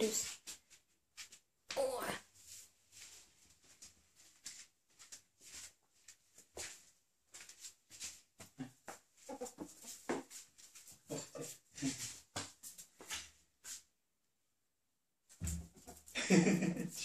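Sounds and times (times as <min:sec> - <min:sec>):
taps and scuffs on tiled floor: 0:02.4 - 0:13.9, 0:15.3 - 0:16.1.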